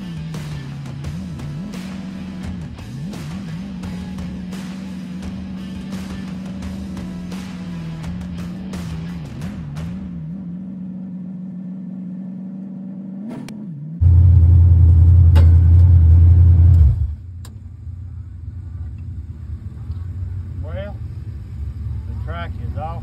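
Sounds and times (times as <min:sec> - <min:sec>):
loud deep low rumble: 0:14.0 - 0:17.2
race car engine idling: 0:14.0 - 0:23.0.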